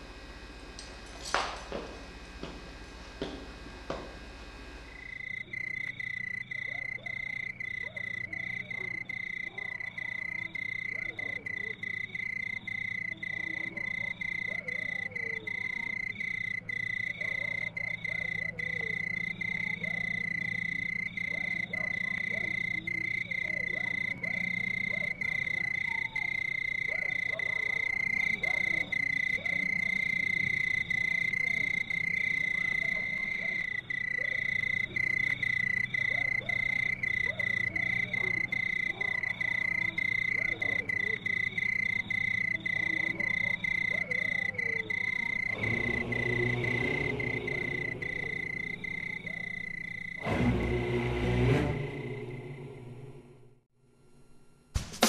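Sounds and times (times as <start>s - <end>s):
frogs calling: 4.8s - 50.3s.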